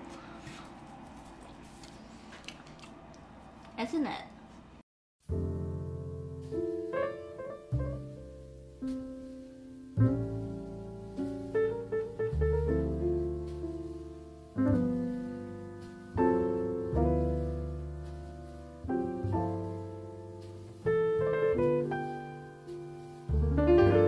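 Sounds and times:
slow solo piano chords: 5.3s - 24.0s.

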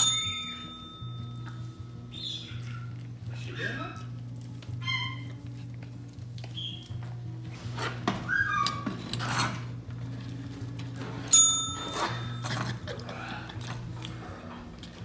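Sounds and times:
desk bell ding: 0.0s - 1.8s, 11.3s - 12.4s.

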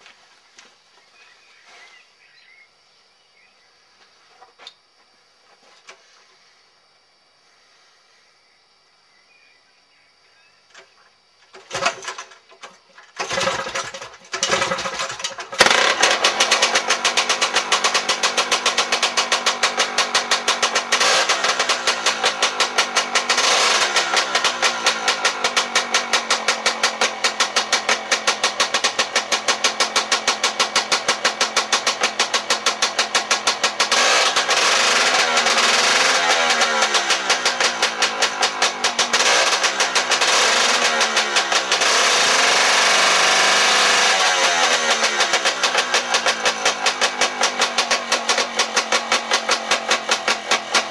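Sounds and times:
two-stroke engine starting and running: 11.5s - 50.9s.

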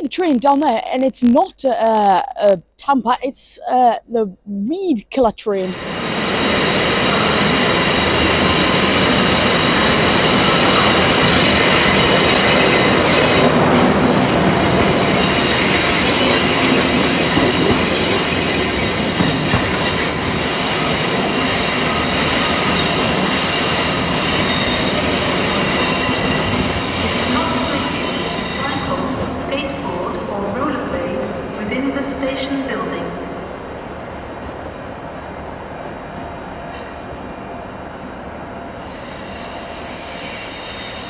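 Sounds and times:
high multi-tone whine: 5.6s - 29.9s
train rumble: 5.6s - 41.0s.

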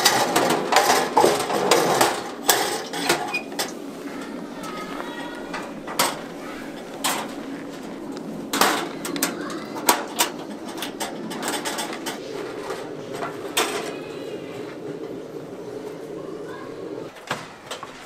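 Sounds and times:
camp stove metal clanks: 0.0s - 14.0s.

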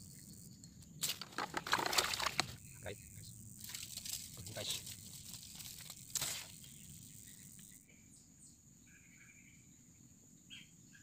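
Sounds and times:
insects buzzing: 0.0s - 11.0s
faint bird chirps: 6.6s - 11.0s.

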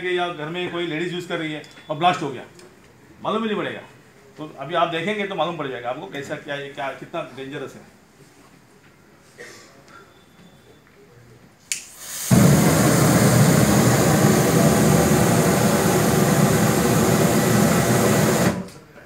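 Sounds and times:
sharp click: 11.7s - 11.9s
burning spray rushing: 11.9s - 18.8s.

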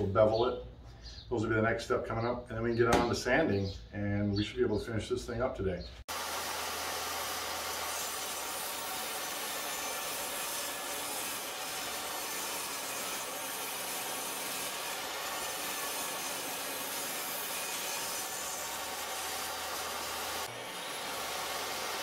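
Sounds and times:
saw blade cutting wood: 6.1s - 22.0s
table saw running: 6.1s - 22.0s.

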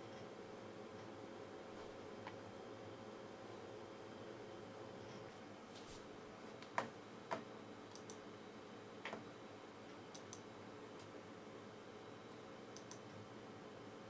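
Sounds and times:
faint steady hum: 0.0s - 14.0s
computer mouse clicks: 6.6s - 8.2s, 10.1s - 11.1s, 12.7s - 13.1s.

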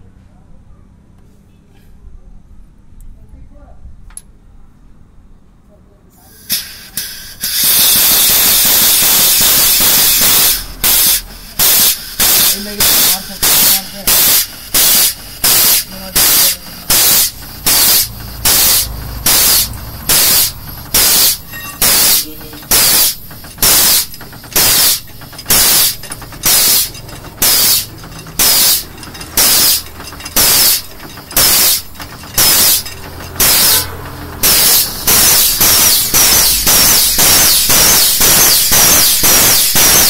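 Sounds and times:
pneumatic pump air hissing: 6.2s - 40.0s.

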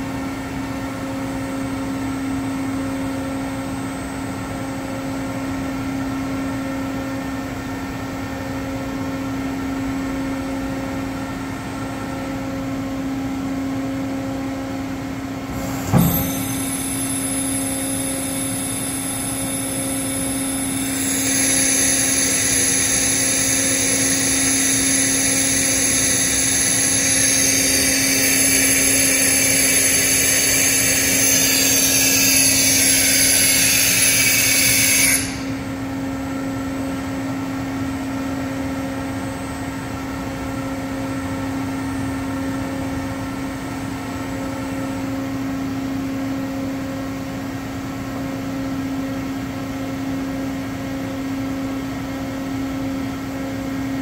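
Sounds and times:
mill machine humming: 15.2s - 32.8s
sharp clunk: 15.5s - 16.7s
hiss: 20.6s - 35.6s.

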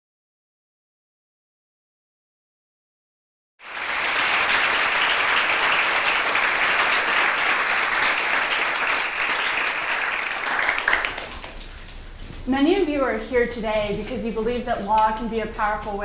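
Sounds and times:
audience applauding: 3.6s - 11.9s.

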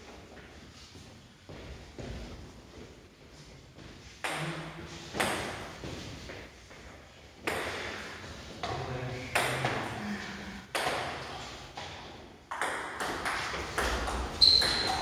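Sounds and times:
table tennis ball strikes: 10.7s - 11.2s, 12.5s - 15.0s.

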